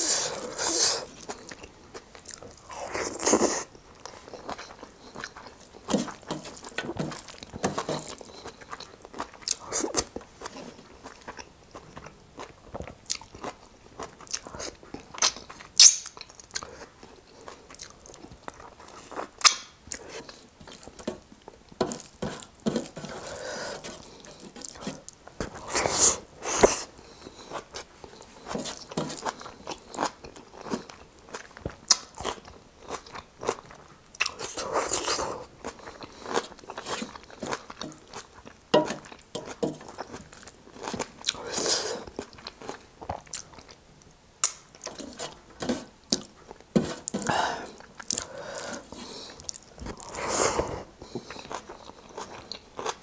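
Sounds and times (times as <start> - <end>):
food crunching: 0.0 - 53.0
chewing with wet mouth clicks: 1.2 - 10.2, 11.0 - 22.2, 27.6 - 41.4, 42.1 - 45.1, 47.8 - 48.7, 49.4 - 50.1.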